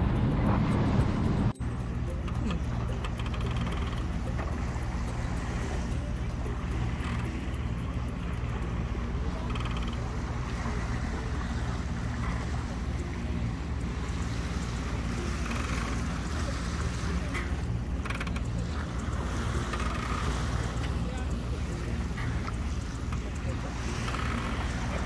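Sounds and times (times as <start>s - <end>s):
low drone: 0.0s - 19.7s
water washing along hull: 0.0s - 25.0s
wind over deck: 0.0s - 25.0s.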